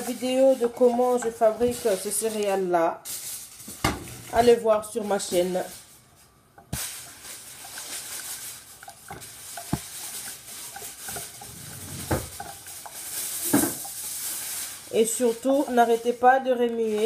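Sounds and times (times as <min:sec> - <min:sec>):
spoon stirring thick porridge: 0:00.0 - 0:02.6, 0:06.2 - 0:17.0
steady hiss: 0:01.7 - 0:16.2.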